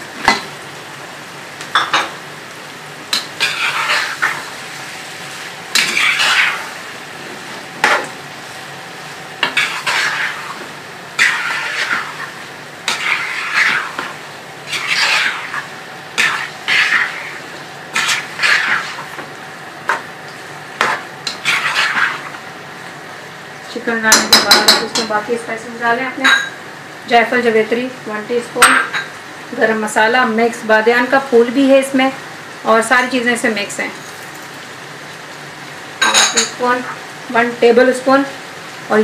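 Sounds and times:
oil sizzling: 0.0 - 39.0
metal spoon scraping pan: 3.1 - 4.4, 5.8 - 6.7, 9.4 - 10.6, 11.2 - 14.1, 14.7 - 19.2, 20.8 - 22.4
spoon clinking against pan: 24.1 - 25.1.

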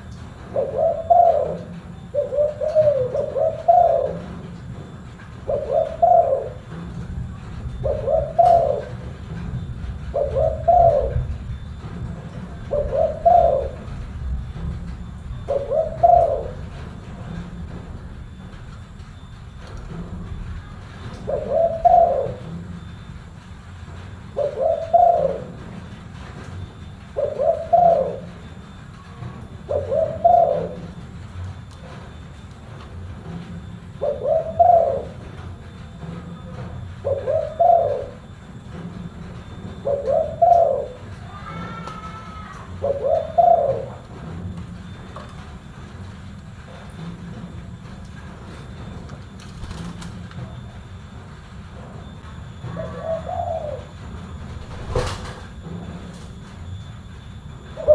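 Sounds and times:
dove cooing: 0.4 - 4.6, 5.3 - 18.0, 19.8 - 22.9, 24.4 - 25.9, 27.2 - 28.6, 29.6 - 31.0, 33.9 - 35.4, 36.3 - 38.3, 39.6 - 44.2, 52.4 - 56.4, 57.5 - 57.9.

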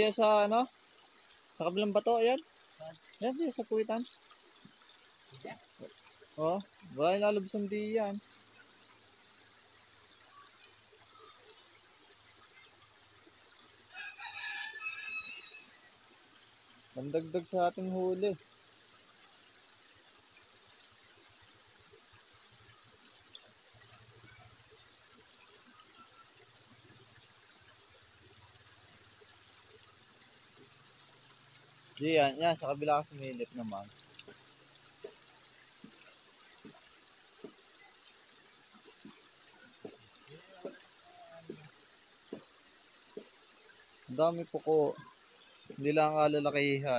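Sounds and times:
faint water splashes: 0.0 - 46.9
insects droning: 0.0 - 46.9
rooster crowing: 13.9 - 15.8.

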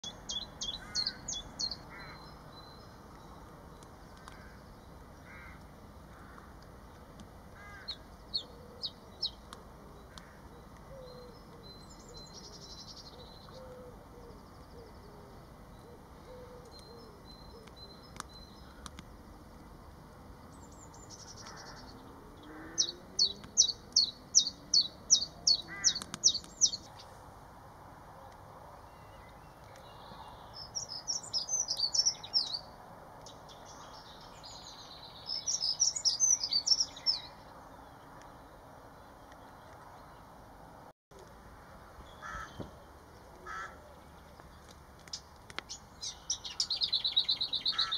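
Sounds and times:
bird twittering: 45.1 - 47.9.

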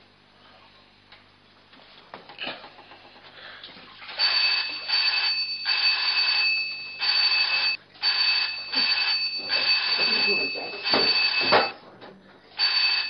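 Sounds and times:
electric bell ringing: 4.2 - 11.8, 12.6 - 13.0.

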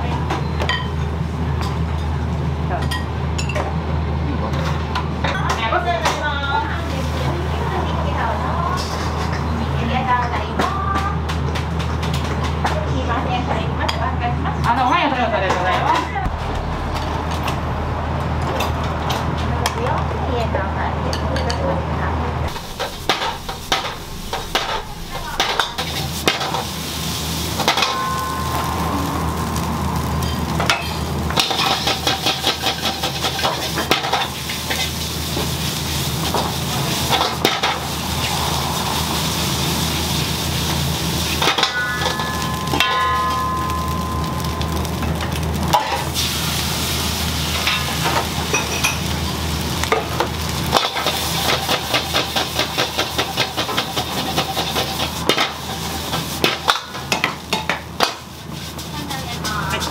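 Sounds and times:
food sizzling in pan: 22.5 - 59.9.

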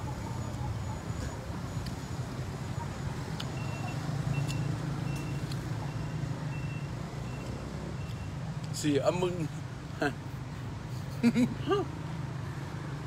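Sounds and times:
reversing alarm beeps: 3.4 - 8.4.

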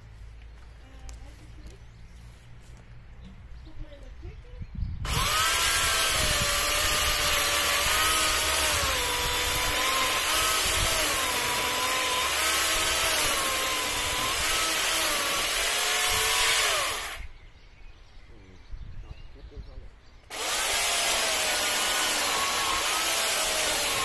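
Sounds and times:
electric chainsaw cutting wood: 5.1 - 17.3, 20.3 - 24.0.

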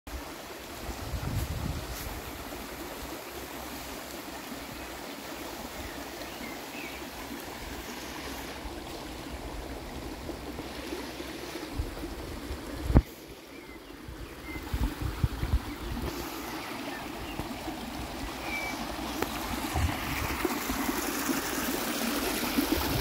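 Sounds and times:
stream running over stones: 0.1 - 23.0.

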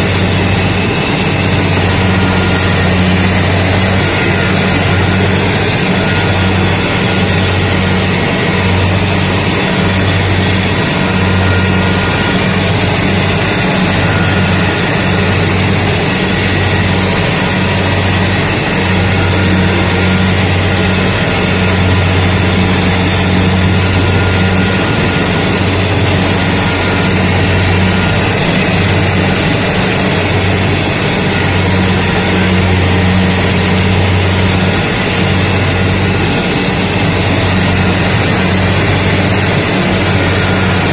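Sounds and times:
combine harvester engine drone: 0.0 - 40.9
mechanical whir: 0.0 - 40.9.

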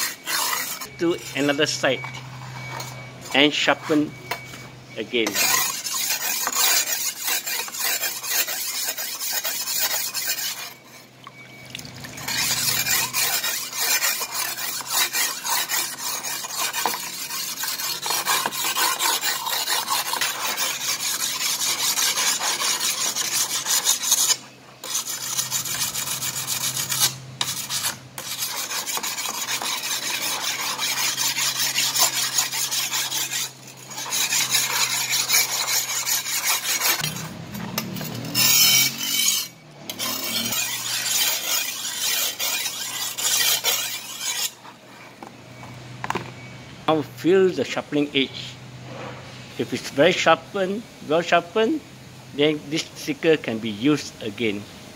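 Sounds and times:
sharpening stone scraping blade: 0.0 - 4.1, 5.2 - 44.8.

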